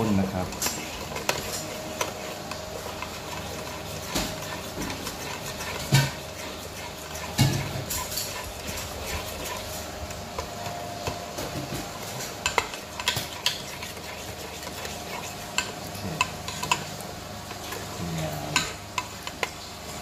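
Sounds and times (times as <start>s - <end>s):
liquid sloshing in a pot: 0.4s - 20.0s.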